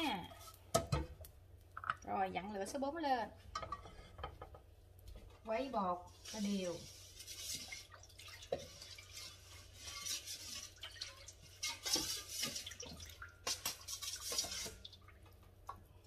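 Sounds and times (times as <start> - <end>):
batter sloshing: 5.2 - 16.0.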